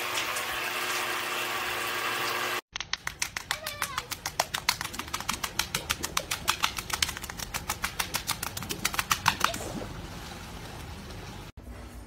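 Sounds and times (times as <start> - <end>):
seal slapping its belly: 2.8 - 10.2.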